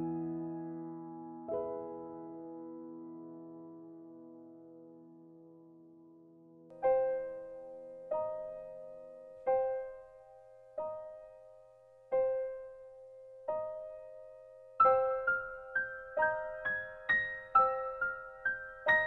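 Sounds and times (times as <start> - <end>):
slow piano notes: 0.0 - 19.0.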